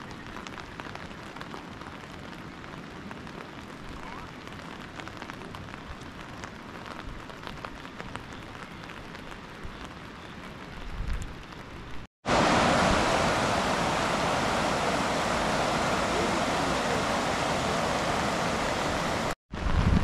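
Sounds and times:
light rain falling: 0:00.0 - 0:19.8
rushing floodwater: 0:12.2 - 0:19.4.

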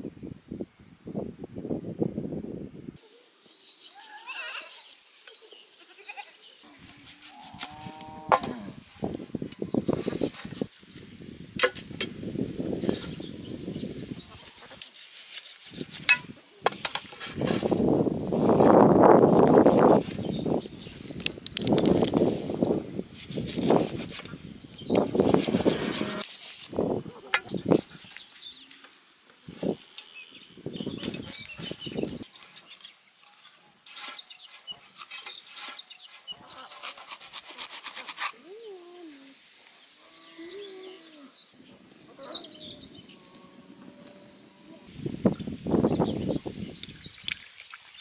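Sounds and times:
close rustling and crackling: 0:19.2 - 0:22.5, 0:30.8 - 0:38.4
knife slicing raw chicken: 0:33.9 - 0:38.4.

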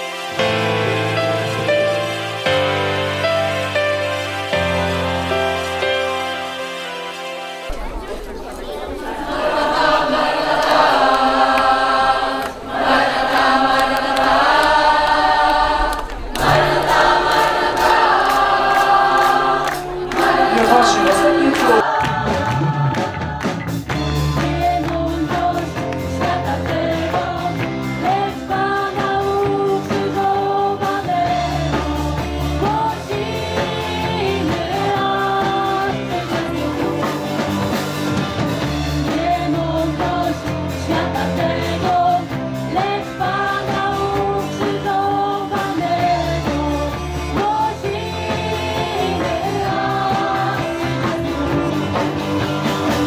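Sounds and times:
choir singing: 0:04.8 - 0:53.0
accompaniment with strong bass line: 0:12.8 - 0:29.4.

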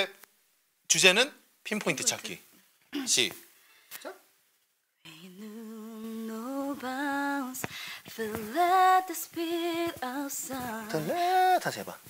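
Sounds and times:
woman singing unaccompanied: 0:05.0 - 0:11.7
woman breathing: 0:07.6 - 0:08.2.

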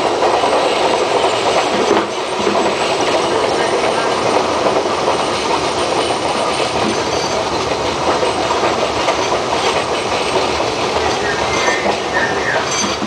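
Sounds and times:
subway car wheels on rails: 0:00.0 - 0:13.0.

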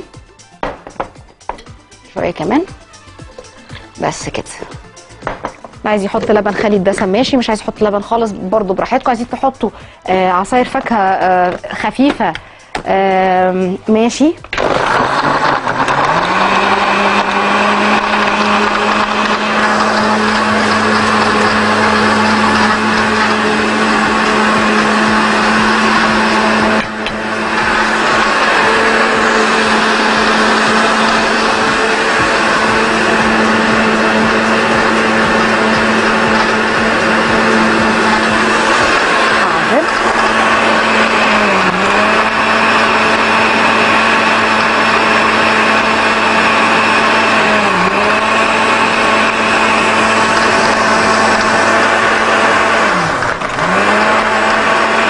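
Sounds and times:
blender motor humming: 0:14.4 - 0:55.0.

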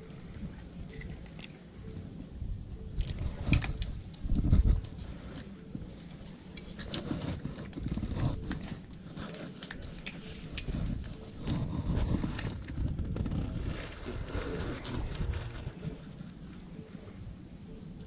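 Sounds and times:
low rumble: 0:09.9 - 0:18.0.

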